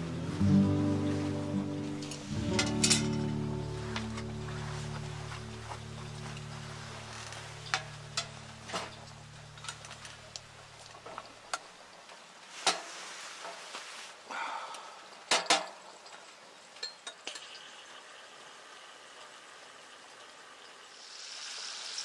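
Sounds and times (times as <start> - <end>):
background music: 0.0 - 10.8
metal cookware clinking: 2.0 - 3.3.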